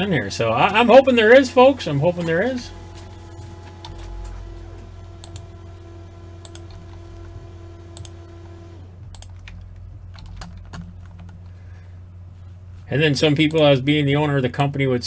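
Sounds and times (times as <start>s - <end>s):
steady low hum: 0.0s - 15.0s
steady tone: 0.7s - 13.1s
keyboard typing and clicking: 5.2s - 5.5s, 6.4s - 8.2s, 9.1s - 11.6s.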